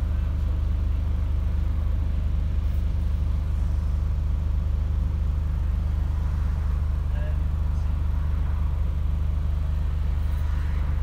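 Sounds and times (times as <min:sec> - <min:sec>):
bus diesel engine drone: 0:00.0 - 0:11.0.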